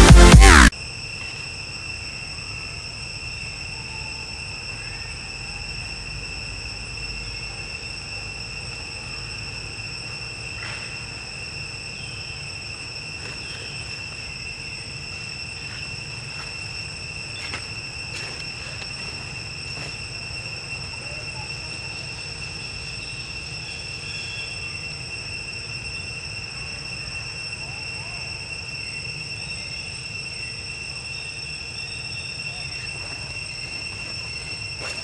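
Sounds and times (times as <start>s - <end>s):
electronic music jingle: 0.0s - 0.7s
insect chorus droning: 0.0s - 35.0s.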